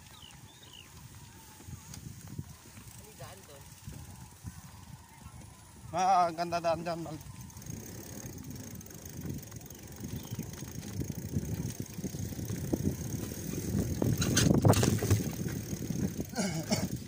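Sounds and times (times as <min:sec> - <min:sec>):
bike rolling over bumpy grass: 0:00.0 - 0:17.0
bike frame rattling knocks: 0:07.8 - 0:16.3.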